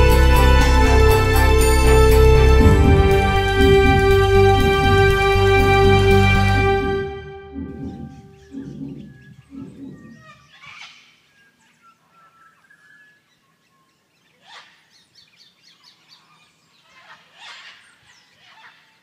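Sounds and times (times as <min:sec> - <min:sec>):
rural ambience: 0:00.0 - 0:19.0
birds calling: 0:07.4 - 0:19.0.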